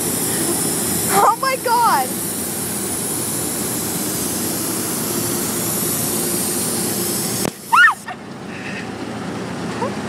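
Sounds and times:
air hose hissing: 0.0s - 8.1s
person crying out: 7.7s - 8.1s.

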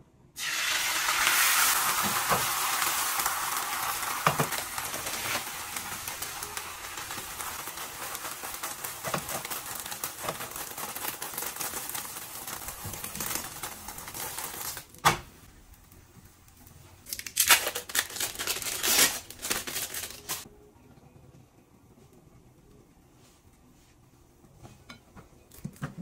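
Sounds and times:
egg sizzling in a frying pan: 0.4s - 14.8s
plastic wrapper crinkling: 4.3s - 15.0s, 17.0s - 20.5s.

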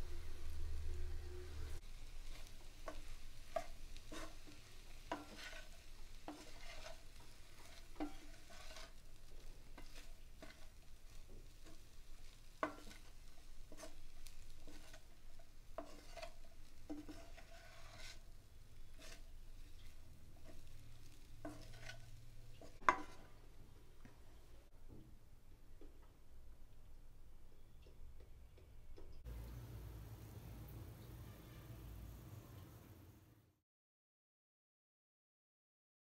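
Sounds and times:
spatula scraping a pan: 1.6s - 23.4s.

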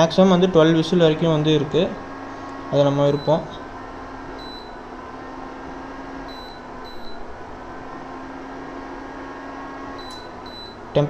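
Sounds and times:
cooling fan humming: 0.0s - 11.0s
short high beeps: 4.4s - 4.8s, 6.3s - 7.2s, 10.0s - 10.8s.

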